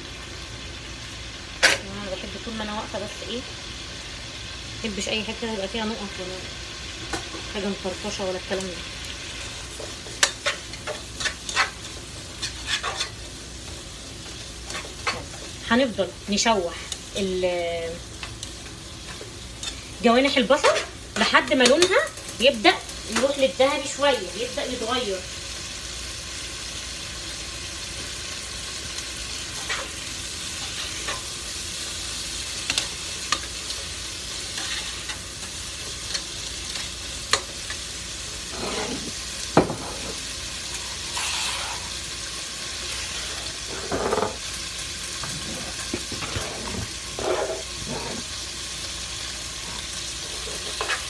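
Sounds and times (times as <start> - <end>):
onions sizzling in a pot: 0.0 - 51.0
spoon knocking and scraping pot: 38.5 - 40.2, 43.7 - 44.4, 45.2 - 48.2.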